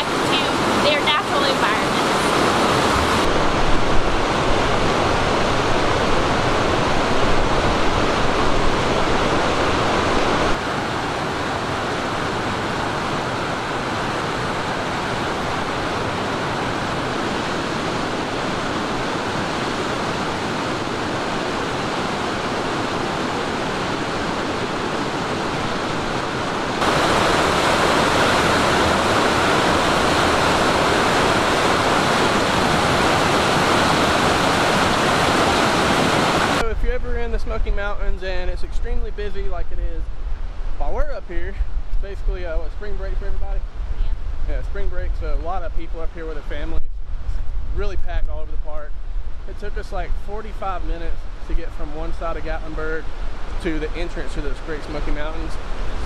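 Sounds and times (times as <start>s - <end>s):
river water rushing: 0.0s - 36.6s, 51.2s - 56.0s.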